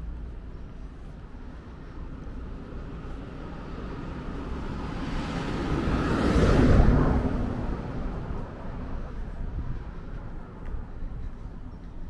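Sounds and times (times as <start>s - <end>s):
van driving past: 2.5s - 9.0s.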